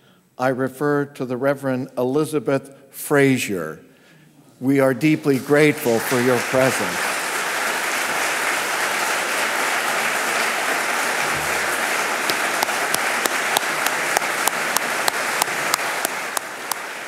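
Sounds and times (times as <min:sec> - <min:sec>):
audience applauding: 0:05.5 - 0:17.0.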